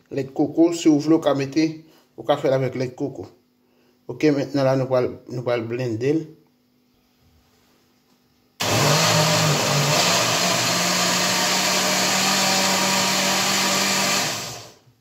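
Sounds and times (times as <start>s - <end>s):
blender motor running: 8.6s - 14.8s.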